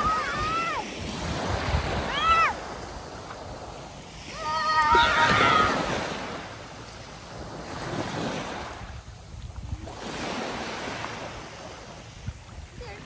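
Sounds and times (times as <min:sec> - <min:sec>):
child shouting: 0:00.0 - 0:00.9, 0:02.0 - 0:02.6, 0:04.3 - 0:05.9
small surf breaking on beach: 0:00.0 - 0:13.0.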